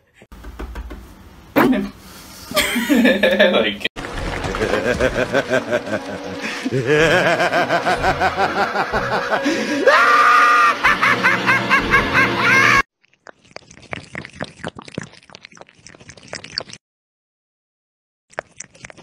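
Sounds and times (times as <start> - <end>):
person laughing hard: 2.5 - 3.5, 4.4 - 12.8
cat lapping water: 13.0 - 16.8, 18.3 - 19.0.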